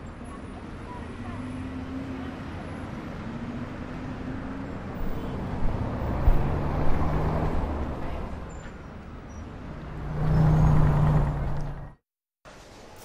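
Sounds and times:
cars passing close by: 0.1 - 12.0.

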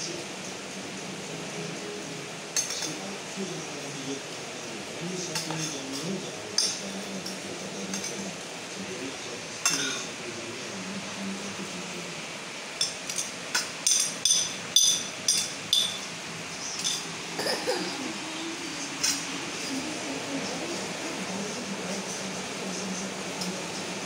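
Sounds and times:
cutlery clinking on glass plate: 2.6 - 3.0, 5.3 - 8.2, 9.6 - 10.1, 12.8 - 16.1, 16.8 - 17.1, 19.0 - 19.2.

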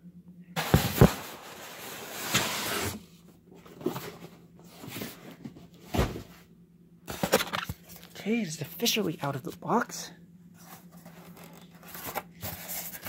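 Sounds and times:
foam and cardboard rustling: 0.6 - 6.5, 10.6 - 13.0.

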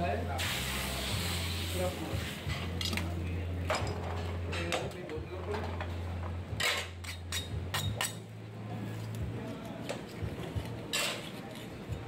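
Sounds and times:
metal pans and lids clattering: 3.7 - 8.2, 10.9 - 11.4.

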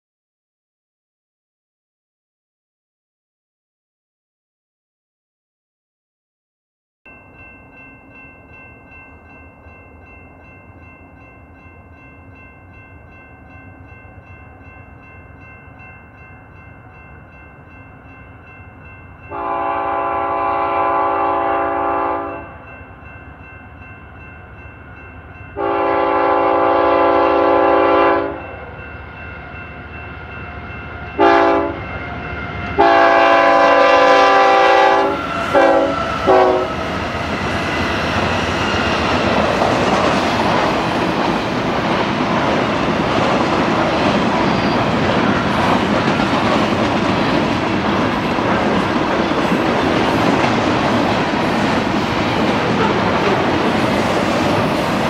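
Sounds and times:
freight train rumbling past: 7.1 - 55.0
locomotive air horn blasts: 19.3 - 22.5, 25.6 - 28.4, 31.2 - 31.8, 32.8 - 36.9.

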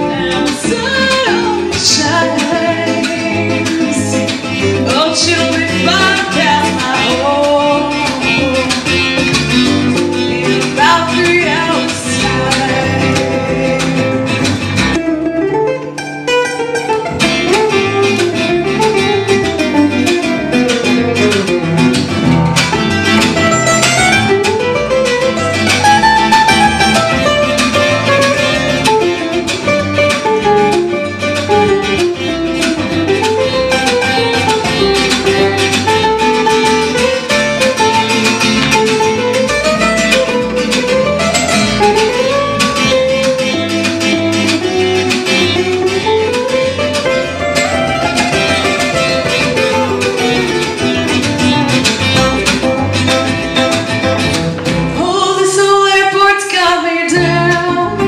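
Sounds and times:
bass: 0.0 - 58.0
lead acoustic guitar solo: 0.0 - 58.0
rhythm guitar: 0.0 - 58.0.

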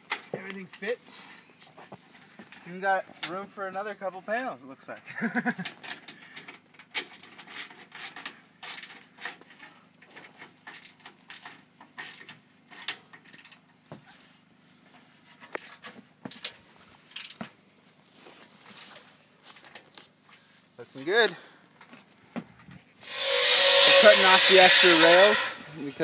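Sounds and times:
metallic clicks and scrapes: 5.7 - 13.7.

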